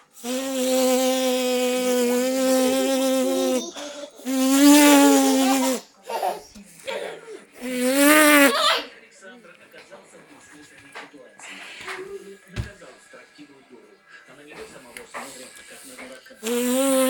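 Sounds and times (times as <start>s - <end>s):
person imitating bee buzz: 0.2s - 5.8s, 16.4s - 17.0s.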